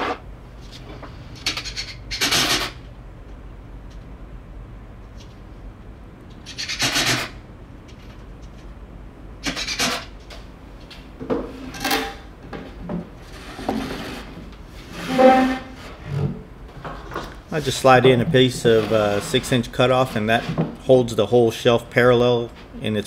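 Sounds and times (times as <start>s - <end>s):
wooden panels scraping: 11.4s - 21.2s.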